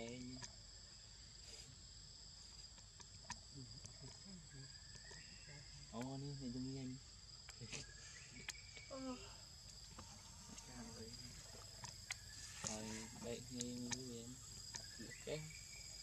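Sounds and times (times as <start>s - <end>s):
low voice: 0.0s - 0.4s, 6.0s - 7.0s, 7.6s - 8.0s, 10.5s - 11.5s, 12.6s - 14.4s, 15.0s - 15.6s
insects trilling: 0.0s - 16.0s.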